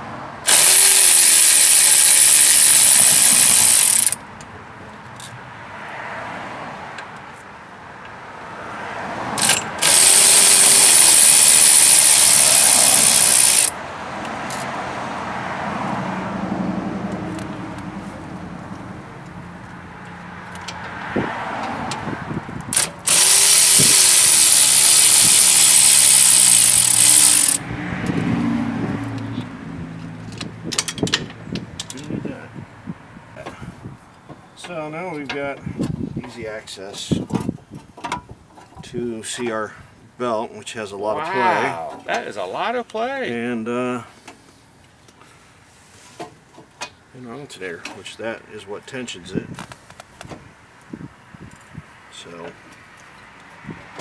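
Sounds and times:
cordless power tool running: 0:00.5 - 0:04.2, 0:09.8 - 0:13.7, 0:23.0 - 0:27.6.

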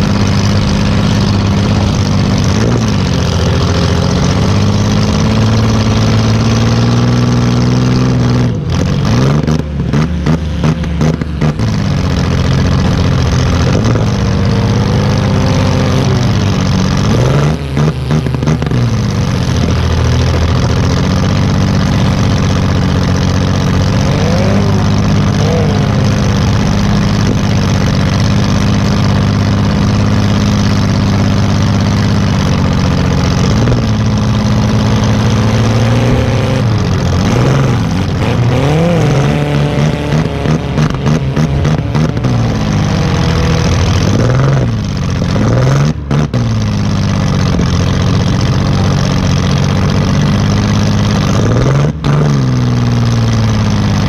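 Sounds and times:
engine running and revving: 0:00.0 - 0:54.0
rapid uneven engine clattering: 0:00.0 - 0:54.0.

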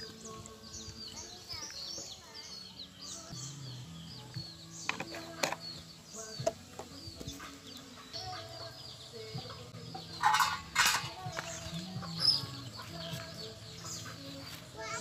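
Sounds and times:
small birds chirping: 0:00.0 - 0:15.0
chickens clucking: 0:04.2 - 0:15.0.

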